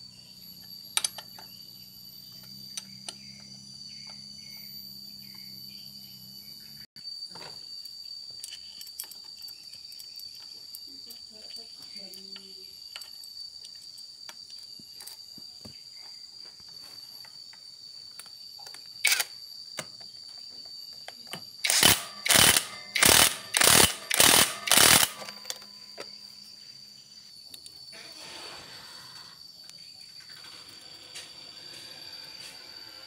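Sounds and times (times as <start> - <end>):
ratchet wrench clicking: 21.6 - 25.6.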